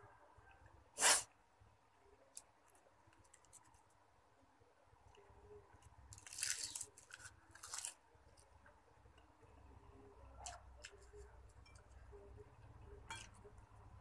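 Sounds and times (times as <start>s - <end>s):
crisp food crunching: 6.1s - 8.0s.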